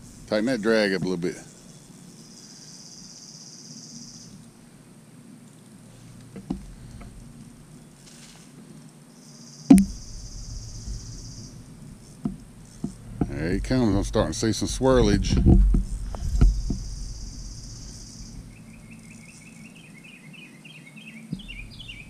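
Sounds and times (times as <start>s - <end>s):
insects buzzing: 0.0s - 22.0s
sharp knock: 9.7s - 10.3s.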